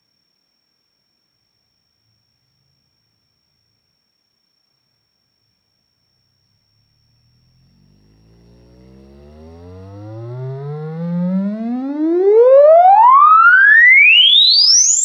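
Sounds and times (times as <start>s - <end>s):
woofer playing rising tone sweep: 6.9s - 15.0s.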